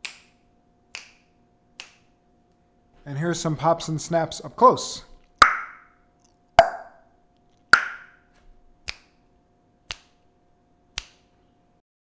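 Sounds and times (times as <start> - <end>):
mouth pops and finger snaps: 0.0 - 0.3, 0.9 - 2.1, 5.4 - 7.0, 7.8 - 8.2, 8.8 - 9.2, 9.9 - 10.2, 10.9 - 11.3.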